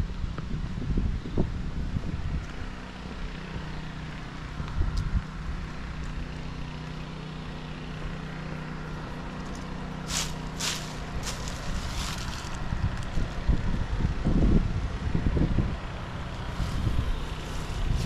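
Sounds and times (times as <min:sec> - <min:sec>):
wind buffeting microphone: 0:00.0 - 0:02.7, 0:10.8 - 0:18.0
steady low hum: 0:00.0 - 0:18.0.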